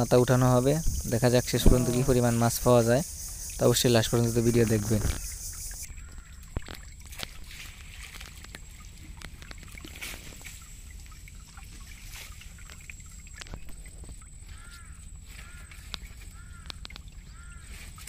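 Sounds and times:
water trickling and dripping: 0:00.0 - 0:18.0
net knocking against boat: 0:01.6 - 0:02.4.

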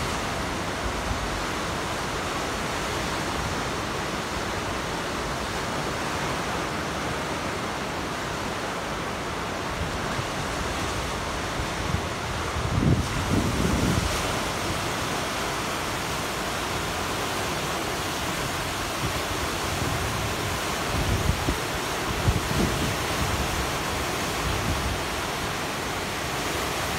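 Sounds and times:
fast river water rushing: 0:00.0 - 0:26.9
wind buffeting microphone: 0:11.4 - 0:14.9, 0:18.9 - 0:23.8.

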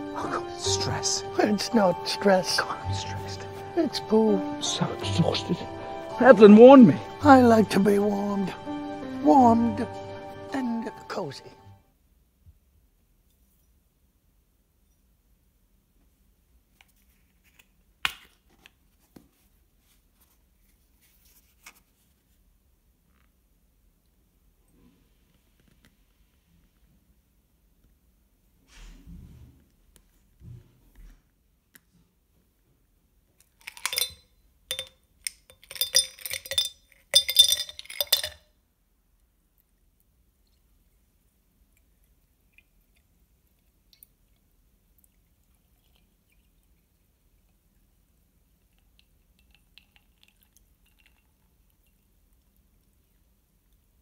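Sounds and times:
ice cubes clinking in glass: 0:33.6 - 0:38.5.

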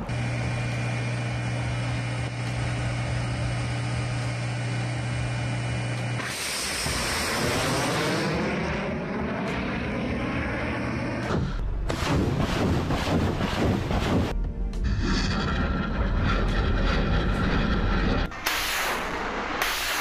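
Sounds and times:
vehicle engine low hum: 0:00.0 - 0:14.8
missile launch roar: 0:06.2 - 0:14.3.

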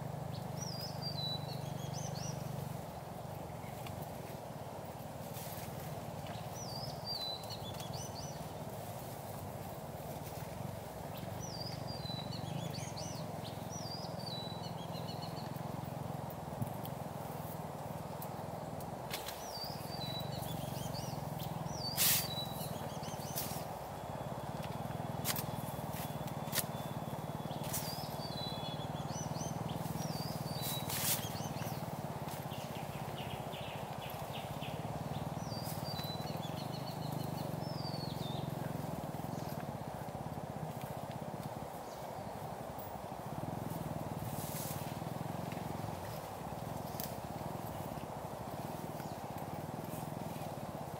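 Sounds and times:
birds chirping: 0:00.0 - 0:50.9
steady background hiss: 0:00.0 - 0:50.9.

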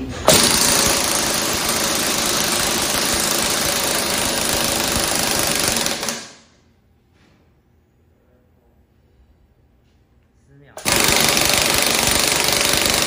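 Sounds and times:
air impact wrench hammering: 0:00.3 - 0:06.6, 0:10.8 - 0:13.0.

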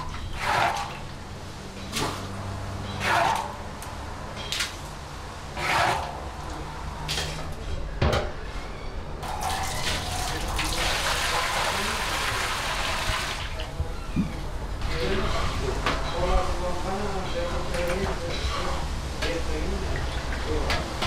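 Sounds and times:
broth pouring and splashing: 0:09.2 - 0:13.6.

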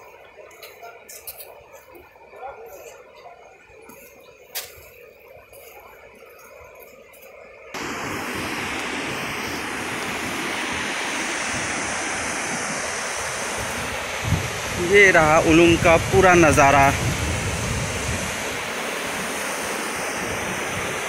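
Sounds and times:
river rapids rushing over rocks: 0:07.8 - 0:17.0.

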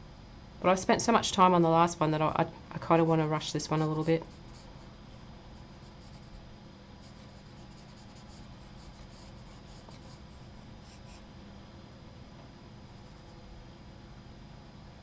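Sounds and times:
pencil scratching on paper: 0:05.6 - 0:06.4, 0:07.0 - 0:11.3.

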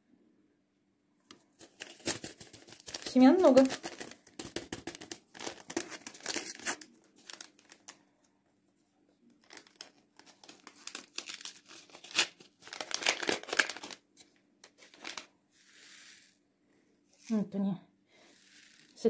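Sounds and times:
paper packet tearing and crinkling: 0:01.6 - 0:08.0, 0:09.4 - 0:14.0, 0:14.6 - 0:16.1.

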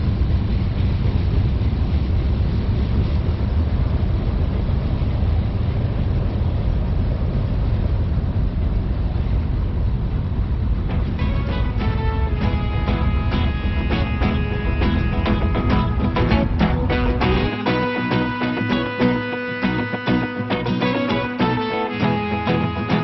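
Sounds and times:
freight train rumbling past: 0:00.0 - 0:23.0
music: 0:10.9 - 0:23.0.

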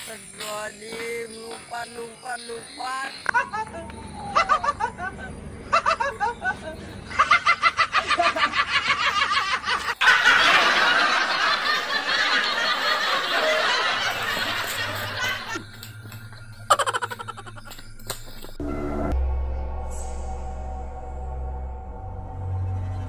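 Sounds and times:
person laughing: 0:03.2 - 0:15.6, 0:16.7 - 0:17.8.

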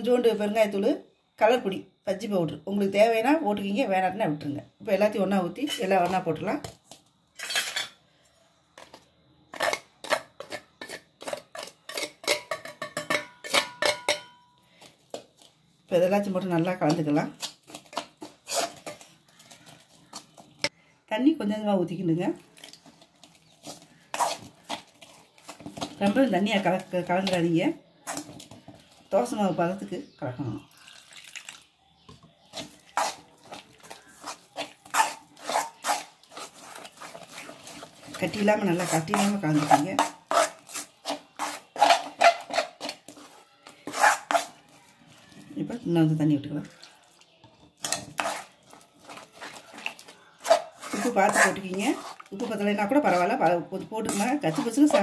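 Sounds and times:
spoon scraping a steel plate: 0:07.4 - 0:08.0, 0:09.5 - 0:14.5, 0:17.8 - 0:20.2, 0:23.6 - 0:25.9, 0:32.5 - 0:44.7, 0:47.8 - 0:55.0.

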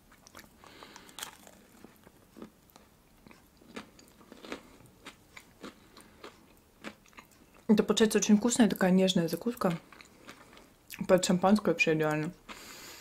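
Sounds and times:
quiet chewing: 0:00.1 - 0:07.7, 0:09.6 - 0:11.0
biting into pastry: 0:00.2 - 0:07.4.

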